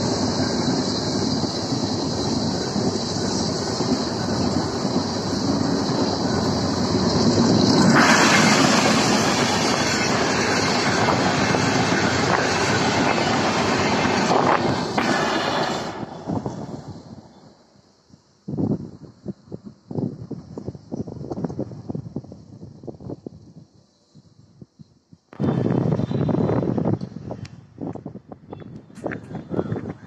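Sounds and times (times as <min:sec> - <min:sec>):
train passing with wheel-on-rail rush: 0:00.0 - 0:30.0.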